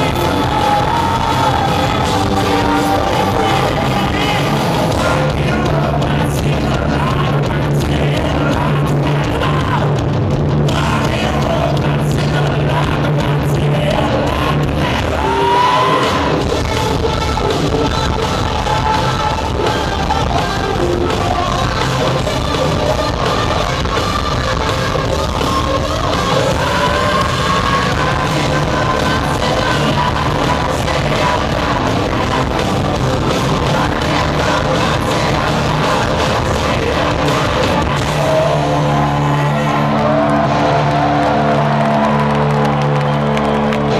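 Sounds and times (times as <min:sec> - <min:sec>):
distorted electric guitars: 0:00.0 - 0:43.9
drums: 0:00.0 - 0:43.9
person singing and shouting: 0:10.6 - 0:41.6.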